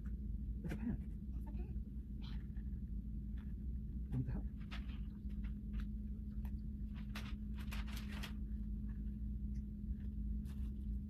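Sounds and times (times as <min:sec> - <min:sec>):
low room hum: 0:00.0 - 0:11.0
rustle of small objects: 0:06.8 - 0:09.0.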